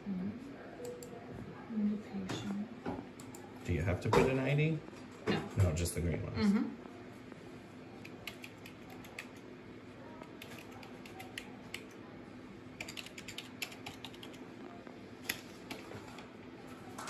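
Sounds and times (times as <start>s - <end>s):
steady low hum: 0.0s - 17.0s
keyboard typing: 8.0s - 9.4s, 10.2s - 12.0s, 12.8s - 14.4s.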